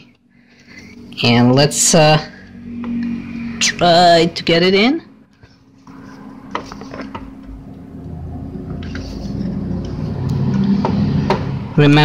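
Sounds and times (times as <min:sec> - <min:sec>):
faint steady hum: 0:00.0 - 0:12.0
low handling rumble: 0:05.9 - 0:12.0.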